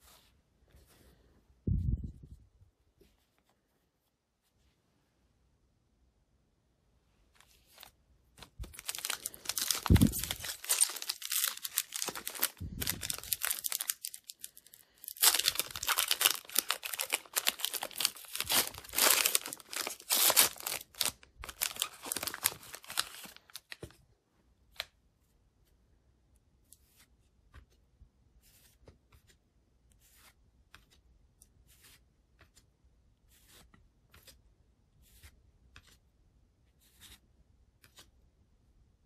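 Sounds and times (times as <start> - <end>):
foil pack tearing and crinkling: 8.7 - 14.5, 15.1 - 23.6.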